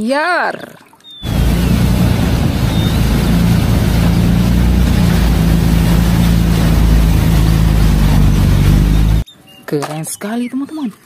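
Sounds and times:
motorboat engine drone: 1.2s - 9.2s
water rushing and spray: 1.2s - 9.2s.

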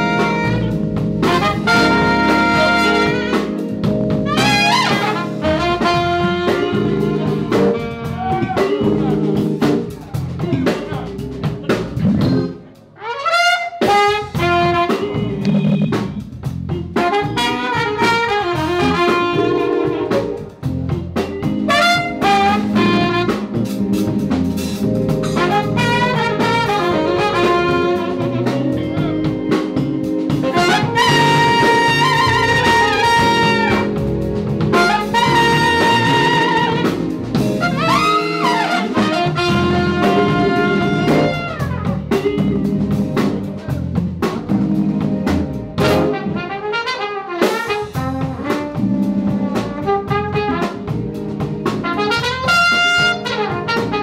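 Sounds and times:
trumpet: 0.0s - 8.9s, 13.0s - 16.2s, 17.0s - 20.4s, 21.6s - 23.8s, 25.2s - 29.1s, 30.4s - 42.2s, 45.8s - 54.0s
saxophone: 0.0s - 9.4s, 12.2s - 20.6s, 21.6s - 23.8s, 25.2s - 29.3s, 30.3s - 42.7s, 45.8s - 54.0s
drum kit: 0.0s - 54.0s
electric guitar: 0.0s - 54.0s.

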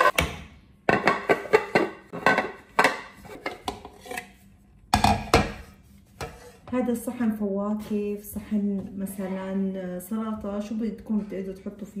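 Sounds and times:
kitchenware knocking and clattering: 0.9s - 4.0s, 4.9s - 6.4s.

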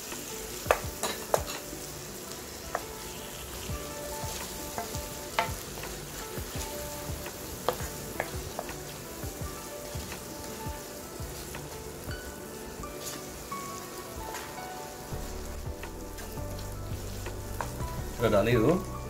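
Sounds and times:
vegetables sizzling in oil: 0.0s - 19.0s.

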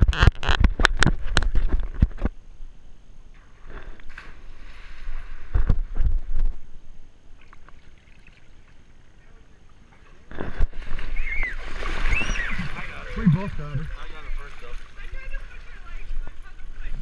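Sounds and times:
water splashing: 3.4s - 6.2s, 7.3s - 17.0s
water swishing: 3.4s - 6.3s, 7.3s - 17.0s
dull underwater thumps: 11.7s - 14.0s.

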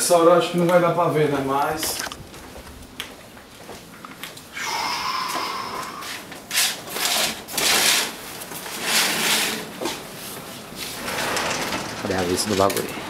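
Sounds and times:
curtains sliding along track: 6.0s - 12.9s
sliding glass door opening: 6.5s - 13.0s.

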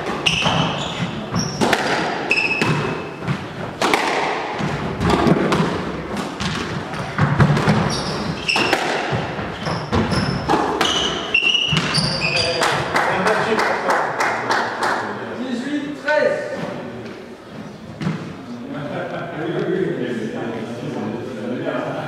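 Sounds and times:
shoes squeaking on wooden floor: 0.0s - 3.9s, 4.5s - 12.8s
squash ball hitting rackets and walls: 0.0s - 13.0s, 18.0s - 18.4s.

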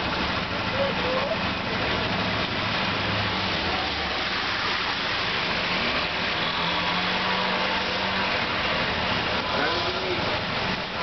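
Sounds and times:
steady rain: 0.0s - 11.0s.

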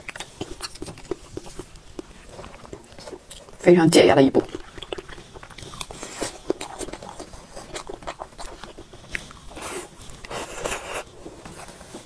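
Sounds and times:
wet chewing and smacking: 0.0s - 3.6s, 4.3s - 12.0s
small mouth clicks: 4.4s - 9.4s.

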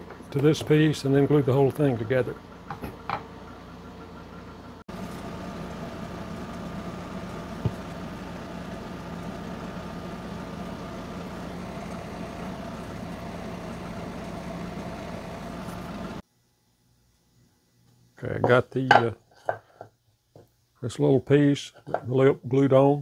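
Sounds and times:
electric motor humming: 4.9s - 16.2s.

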